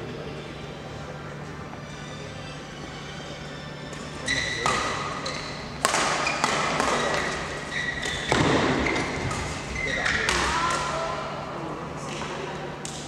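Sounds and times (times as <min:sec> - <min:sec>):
shoes squeaking on floor: 0:00.7 - 0:10.3
rackets striking shuttlecock: 0:03.9 - 0:11.0.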